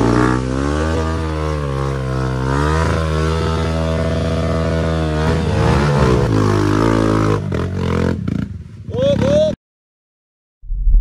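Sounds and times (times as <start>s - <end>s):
motorcycle engine running: 0.0s - 8.6s.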